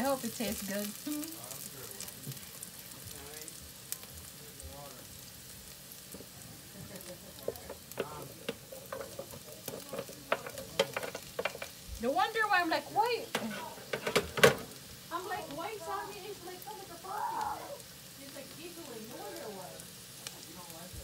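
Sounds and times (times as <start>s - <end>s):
onions sizzling in oil: 0.0s - 21.0s
spatula scraping metal pan: 7.5s - 11.8s, 13.3s - 14.7s.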